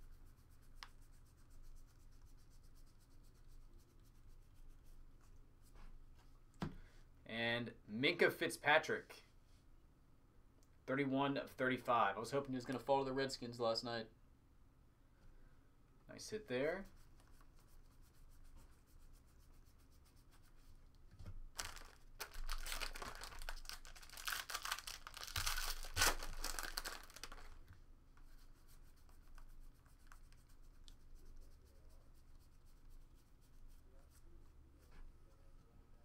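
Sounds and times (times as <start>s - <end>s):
foil wrapper tearing and crinkling: 21.5s - 27.6s.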